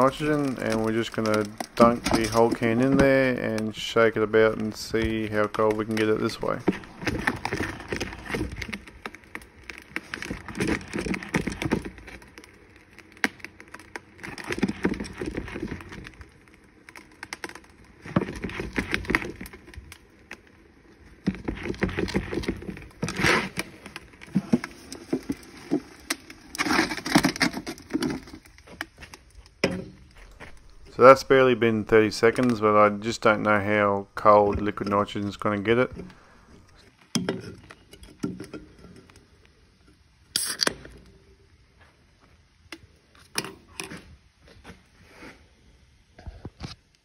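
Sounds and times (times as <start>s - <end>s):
drink can knocking and rolling: 0.0s - 20.5s, 21.1s - 30.9s.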